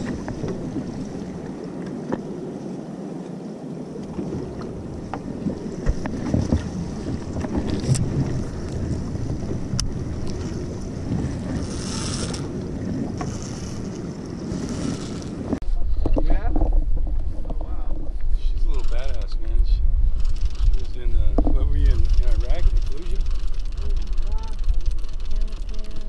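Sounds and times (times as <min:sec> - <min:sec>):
water lapping against boat hull: 0:00.0 - 0:02.6, 0:03.2 - 0:19.5
wind buffeting microphone: 0:00.0 - 0:26.0
sharp clicks and knocks: 0:20.3 - 0:26.0.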